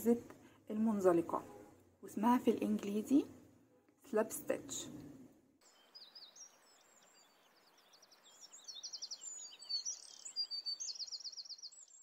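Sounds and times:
small birds chirping: 5.6 - 12.0.

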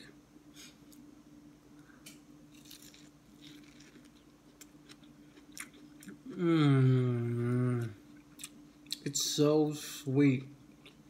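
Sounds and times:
low steady hum: 0.0 - 11.0
person chewing corn: 2.5 - 6.5, 7.4 - 9.1, 10.7 - 11.0.

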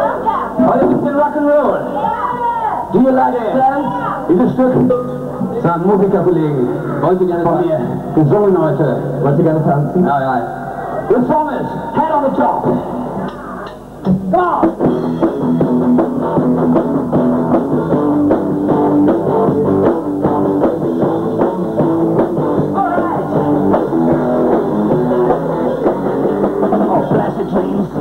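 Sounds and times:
drums steady beat: 0.0 - 1.3, 11.8 - 28.0
electric guitars: 4.0 - 28.0.

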